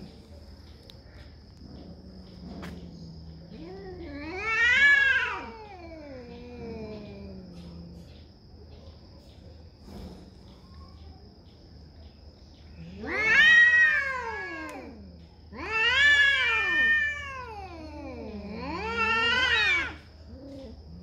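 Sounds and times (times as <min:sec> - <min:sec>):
cats yowling: 0:02.2 - 0:08.0, 0:12.8 - 0:21.0.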